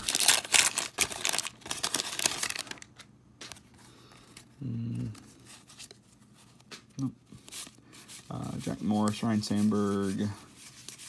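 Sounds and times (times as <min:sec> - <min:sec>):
wax wrapper crinkling and tearing: 0:00.0 - 0:03.6
handling of cards: 0:00.0 - 0:11.0
person humming: 0:04.6 - 0:05.2.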